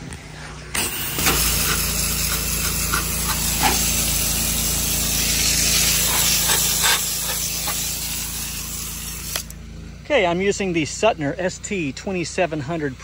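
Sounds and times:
pressure washer jet hissing: 0.8s - 9.6s.

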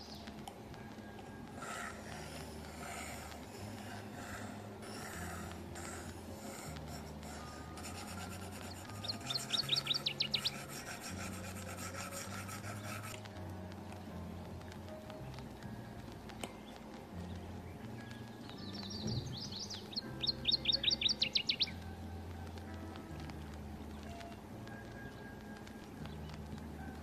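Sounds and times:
stylus scratching on a screen: 1.6s - 13.3s.

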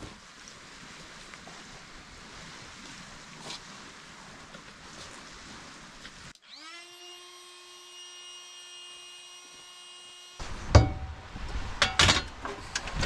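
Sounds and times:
small electric motor whine: 6.4s - 10.4s
loud thump: 10.7s - 11.2s.

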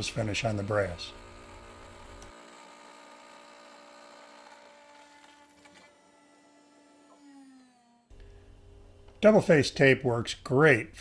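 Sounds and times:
router spindle whine: 0.0s - 8.1s.

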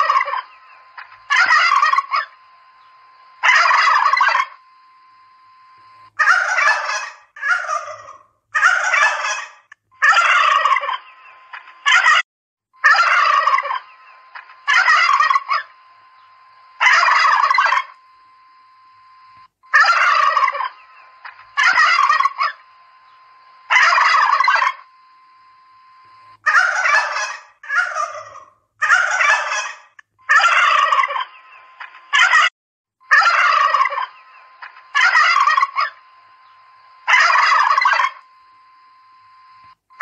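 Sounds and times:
turkeys gobbling: 0.0s - 2.4s, 3.4s - 4.6s, 6.2s - 12.2s, 12.8s - 15.8s, 16.8s - 18.0s, 19.7s - 22.7s, 23.7s - 24.9s, 26.4s - 32.5s, 33.1s - 36.1s, 37.1s - 38.2s.

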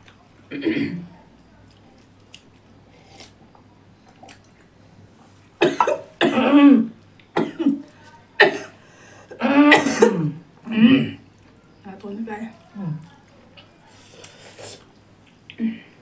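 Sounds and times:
woman coughing hard: 0.5s - 1.0s, 5.6s - 7.8s, 8.4s - 11.2s
chewing: 1.2s - 5.5s, 11.3s - 15.6s.

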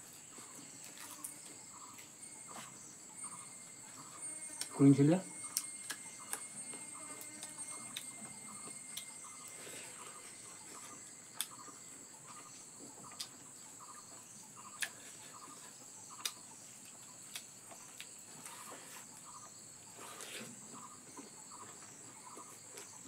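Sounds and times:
insect chirping: 0.0s - 23.0s
high-pitched insect drone: 0.3s - 16.2s.

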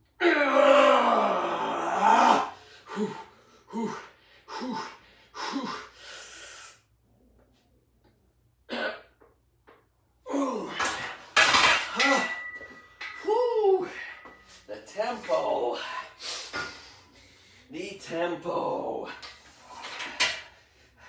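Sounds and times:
man groaning with strain: 0.2s - 5.9s, 10.2s - 11.0s
man breathing hard: 2.4s - 7.0s, 15.8s - 17.7s, 19.5s - 21.0s.

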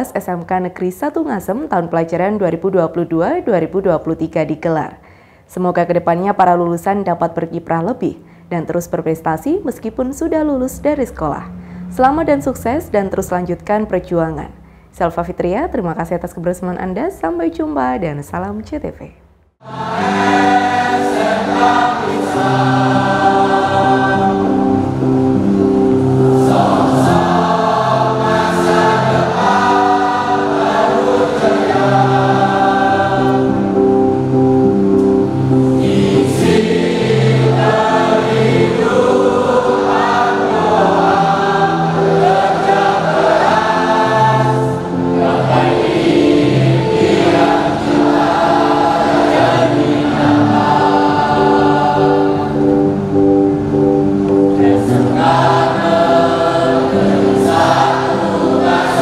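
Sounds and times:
choir singing: 19.6s - 59.0s
musical accompaniment: 19.6s - 59.0s.

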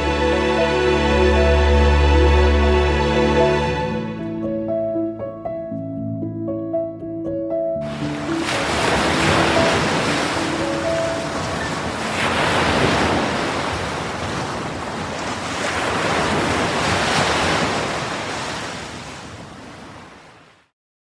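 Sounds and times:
surf washing onto shore: 7.8s - 20.6s.

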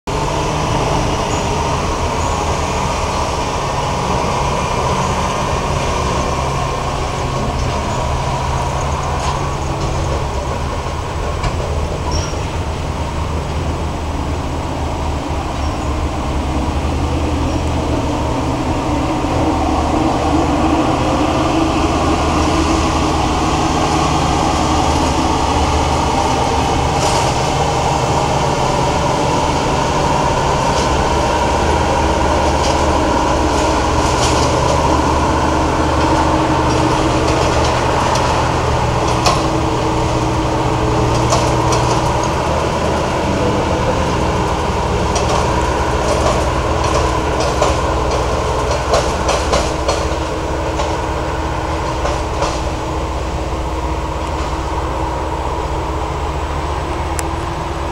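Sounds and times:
combine harvester engine running: 0.1s - 57.9s.

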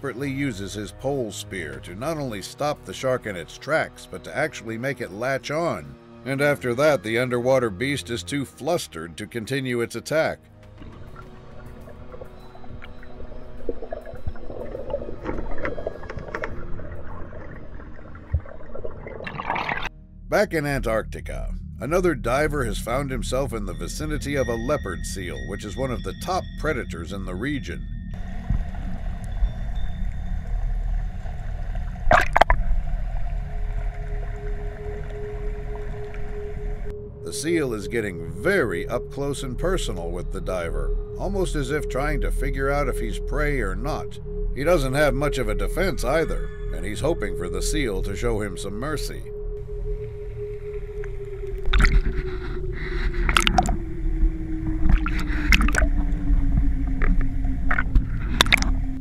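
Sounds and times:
low hum: 10.7s - 59.0s
bubbling gurgles: 10.8s - 19.9s, 28.2s - 39.8s, 51.0s - 59.0s
underwater rumble: 10.8s - 59.0s.

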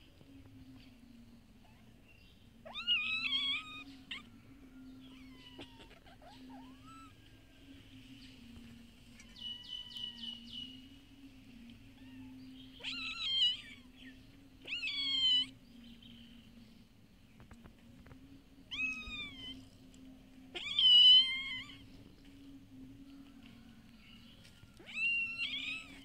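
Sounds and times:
kittens meowing: 2.6s - 4.3s, 5.0s - 7.2s, 9.2s - 10.5s, 11.9s - 15.6s, 18.7s - 19.6s, 20.5s - 21.9s, 24.8s - 26.0s.

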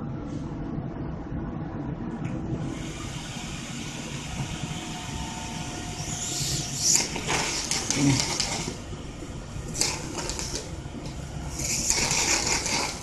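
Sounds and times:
plasma arc hissing and crackling: 2.7s - 8.8s, 9.6s - 10.7s, 11.5s - 13.0s.

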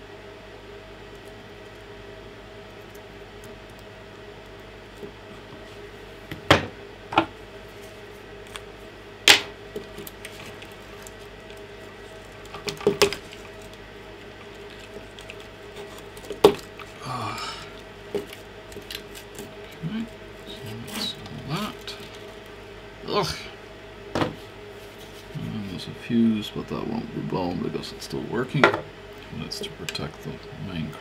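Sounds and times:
faint steady hum: 0.0s - 31.0s.

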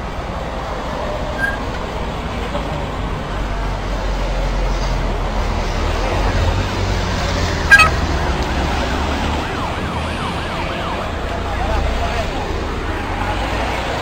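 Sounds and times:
vehicle engines rumbling: 0.0s - 14.0s
police siren yelping: 7.7s - 8.0s
short sharp siren blip: 7.7s - 8.0s.

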